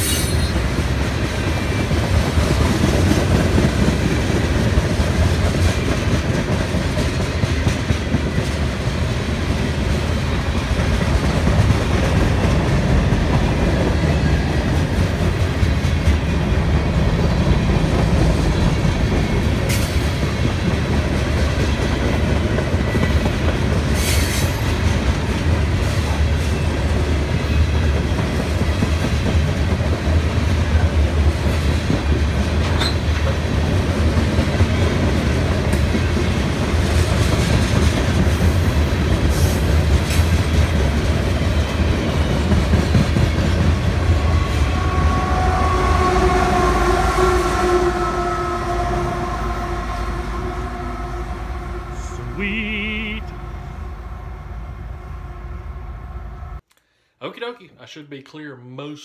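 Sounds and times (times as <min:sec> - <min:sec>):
clickety-clack over rail joints: 0:00.0 - 0:44.2
train wheels rumbling on rails: 0:00.0 - 0:56.6.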